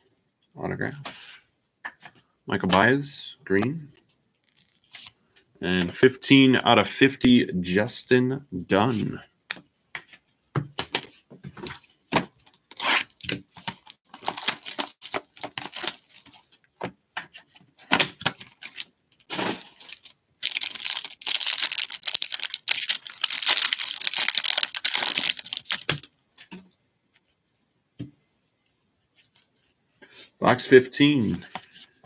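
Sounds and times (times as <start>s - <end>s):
foil wrapper crackling: 13.6s - 16.4s, 18.4s - 26.1s.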